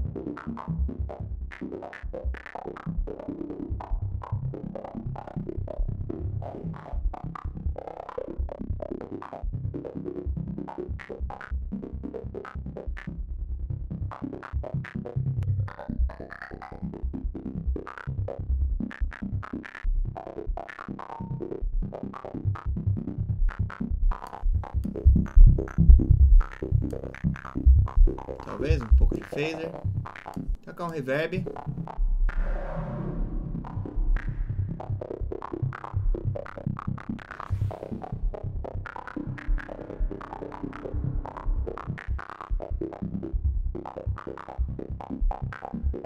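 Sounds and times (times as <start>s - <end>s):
distorted synth line: 32.3s - 43.4s.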